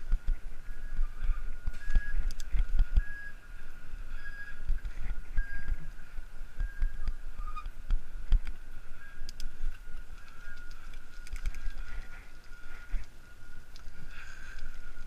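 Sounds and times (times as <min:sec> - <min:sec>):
bicycle rumbling over pavement: 0:00.0 - 0:15.0
faint high whine: 0:00.0 - 0:15.0
sharp clicks and rattles: 0:09.2 - 0:15.0.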